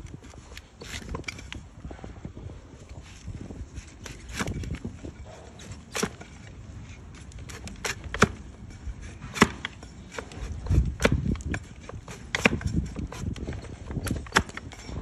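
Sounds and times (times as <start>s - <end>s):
blade scraping hoof: 0.0s - 1.6s, 2.9s - 15.0s.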